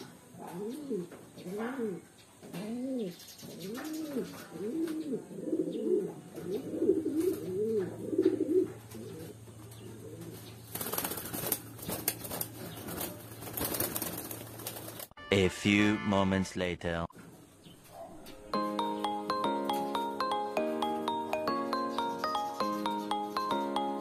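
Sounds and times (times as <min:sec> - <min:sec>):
pigeons cooing: 0:00.0 - 0:15.0
wings flapping: 0:10.6 - 0:15.2.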